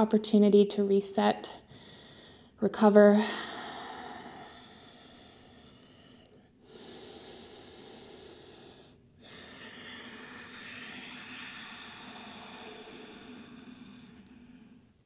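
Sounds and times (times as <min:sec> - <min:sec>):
person breathing slowly and deeply: 0:03.3 - 0:15.0.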